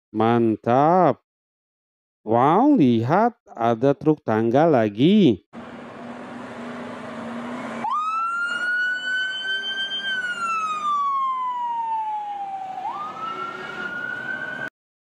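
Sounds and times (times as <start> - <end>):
low engine hum: 5.6 - 11.7
fire truck siren wailing: 5.6 - 14.7.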